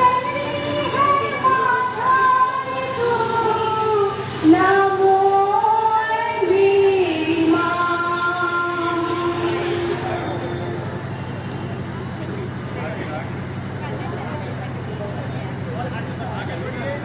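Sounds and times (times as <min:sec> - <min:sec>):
women and children singing a hymn: 0:00.0 - 0:10.2.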